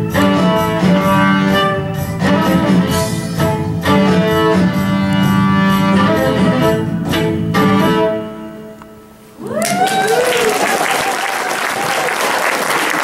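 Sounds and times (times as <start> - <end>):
rhythmic accompaniment with sharp beats: 0.0 - 8.2
audience applause and cheers: 9.4 - 13.0.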